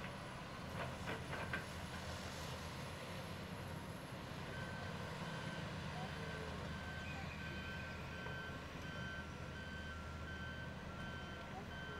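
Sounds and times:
excavator diesel engine running: 3.5 - 11.9.

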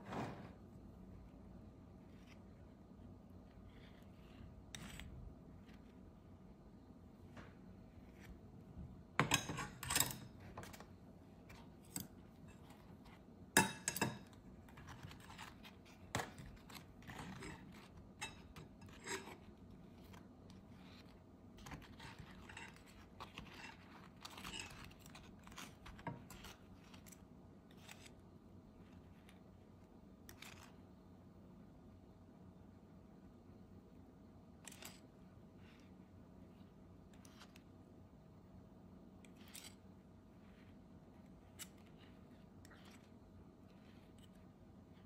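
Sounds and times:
kitchen utensils clicking and scraping: 9.2 - 10.8, 13.6 - 19.5.

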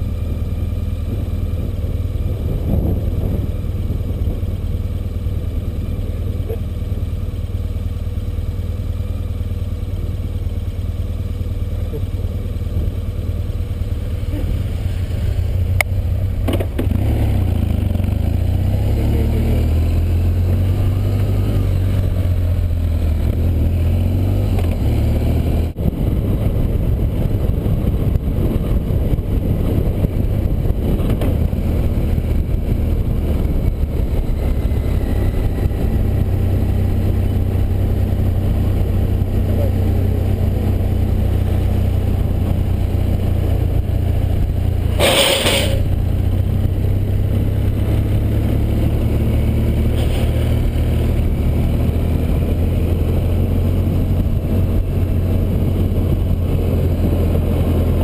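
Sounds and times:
wind noise: 0.0 - 7.2, 19.6 - 58.0
motorcycle engine cruising: 0.0 - 58.0
short rush of noise: 44.9 - 46.0.

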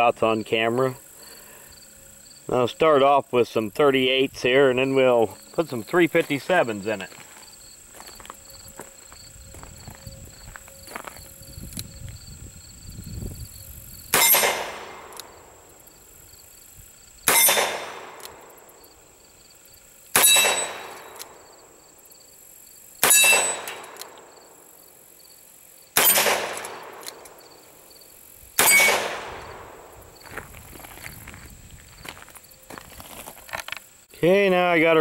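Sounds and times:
metallic ring of steel targets: 14.1 - 15.2, 17.3 - 18.2, 20.2 - 21.4, 23.0 - 24.0, 26.0 - 27.4, 28.6 - 29.4.

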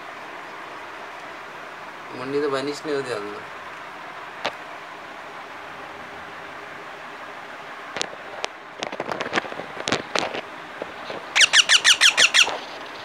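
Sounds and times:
parakeet chick chirps: 11.4 - 12.6
parakeet squawks falling in pitch: 11.4 - 12.6.

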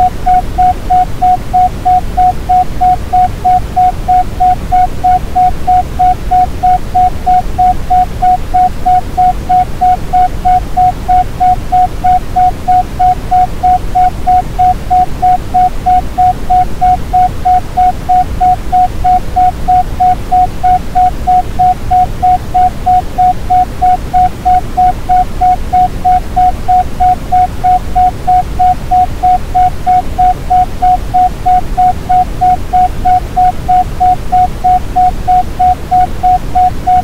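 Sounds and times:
pulsing beep tone: 0.0 - 37.0.

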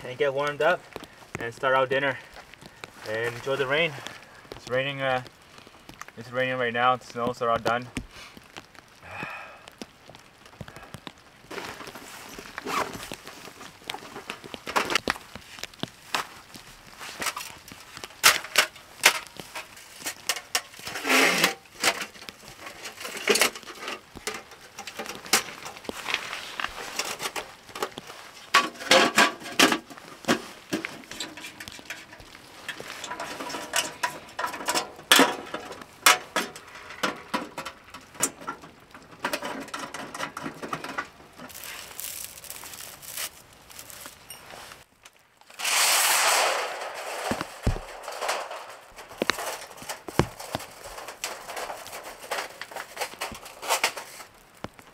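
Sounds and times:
loud scraping rush: 45.5 - 49.6.

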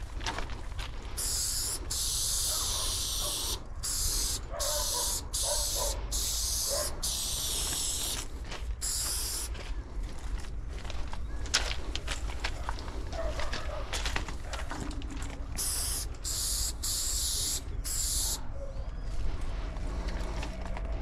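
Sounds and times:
spray paint can hissing: 1.2 - 9.5, 15.6 - 18.4.

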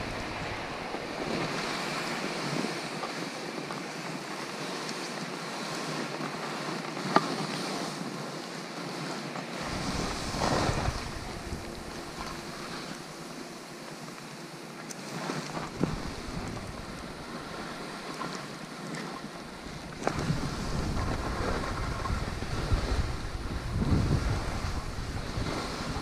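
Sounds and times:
wind buffeting microphone: 0.0 - 5.4, 9.0 - 26.0
skis hissing through snow: 9.6 - 14.0.

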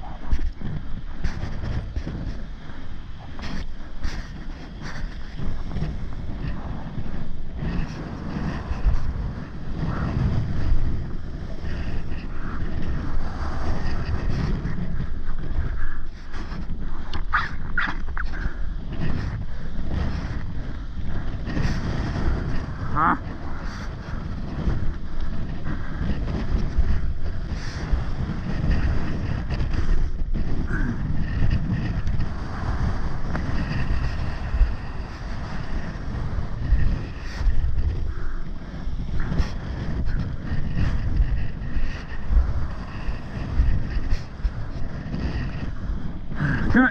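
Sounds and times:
surf washing in shallows: 0.0 - 46.9
wind buffeting microphone: 0.0 - 46.9.

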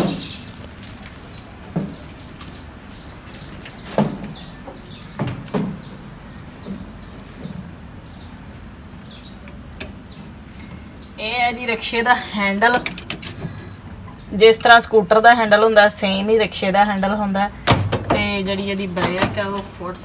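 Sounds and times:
bird chirping: 0.0 - 20.0
knocks and thumps climbing in: 3.7 - 8.0, 17.6 - 18.4.

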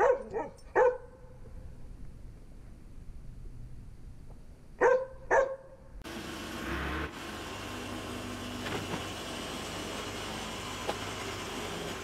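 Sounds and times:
dog barking: 0.0 - 1.3, 4.8 - 5.8
engine hum: 5.8 - 12.0.

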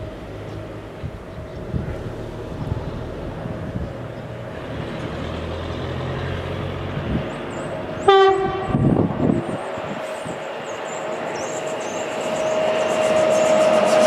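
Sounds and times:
vehicle hum: 0.0 - 14.0
short horn blast: 8.1 - 8.9.

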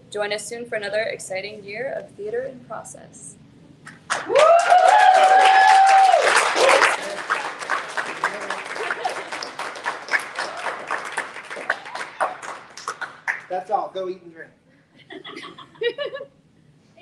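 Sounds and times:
audience applauding: 3.9 - 13.6
loud cheering whoop: 4.2 - 7.4, 10.4 - 10.9.

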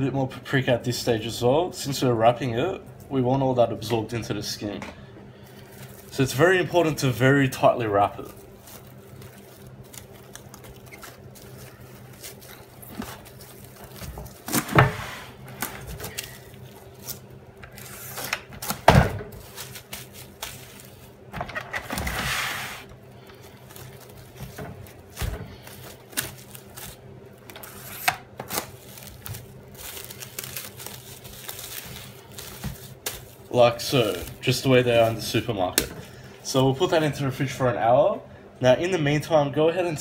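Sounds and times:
cling wrap crinkling: 5.5 - 14.7, 15.4 - 21.3, 23.2 - 35.6.

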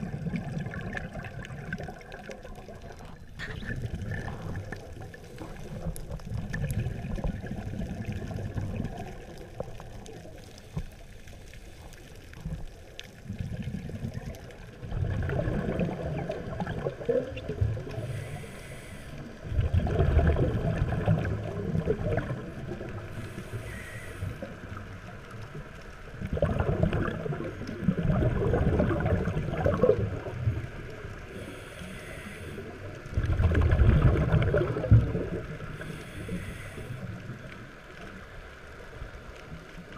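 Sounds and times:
diver's bubbles gurgling underwater: 0.0 - 10.8, 12.3 - 18.2, 19.4 - 23.5, 24.3 - 31.4, 32.6 - 36.0.

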